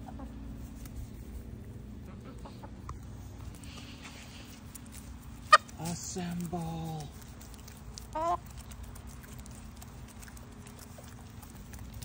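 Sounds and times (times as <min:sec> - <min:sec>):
hens clucking: 0:00.0 - 0:00.7, 0:01.5 - 0:06.0, 0:07.4 - 0:12.0.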